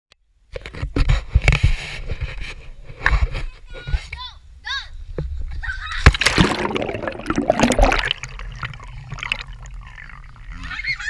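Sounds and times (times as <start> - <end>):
pool water splashing: 6.1 - 11.0.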